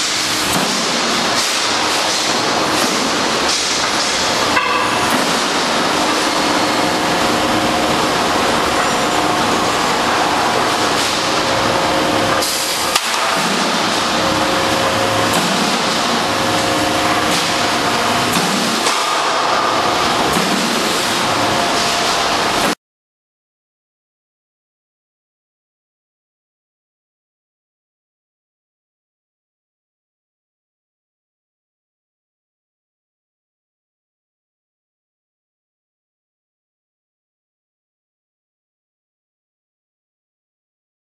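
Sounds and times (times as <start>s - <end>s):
roll forming machine running: 0.0s - 22.8s.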